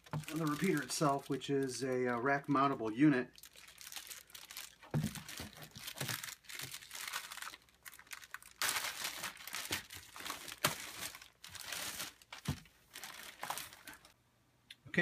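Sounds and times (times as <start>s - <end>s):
plastic wrap crinkling: 0.0s - 14.2s.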